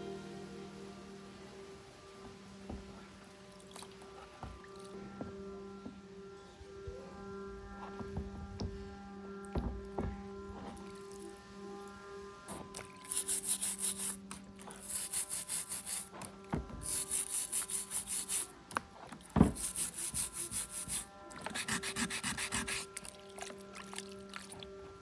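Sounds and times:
stiff brush scrubbing: 12.7 - 16.2, 16.8 - 18.6, 19.5 - 24.0.

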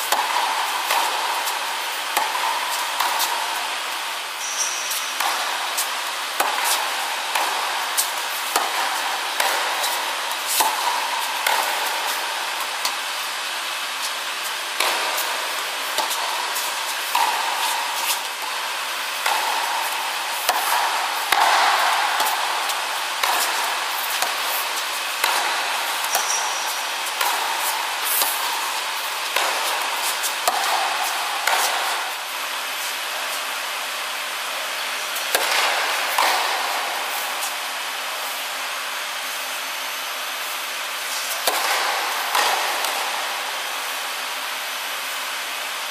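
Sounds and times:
tennis ball bouncing: 0.0 - 3.8, 4.4 - 13.4, 14.8 - 32.3, 34.4 - 37.5, 41.3 - 43.6
racket hitting tennis ball: 0.0 - 14.1, 14.7 - 38.4, 39.2 - 44.1
steady background hiss: 0.0 - 45.9.

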